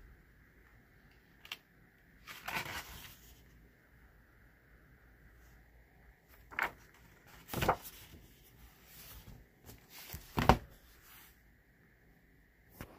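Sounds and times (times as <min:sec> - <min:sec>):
book pages rustling: 0:02.2 - 0:03.5, 0:06.3 - 0:11.3
heavy book cover closing: 0:10.0 - 0:10.8.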